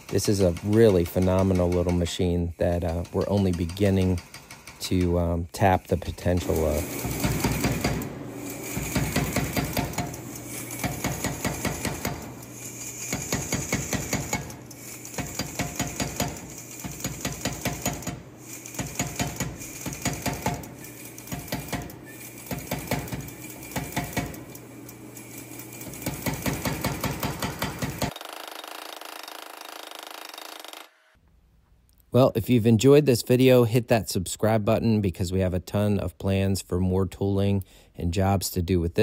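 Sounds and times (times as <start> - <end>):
power hammer hitting hot steel: 6.4 - 24.6, 25.9 - 28.2.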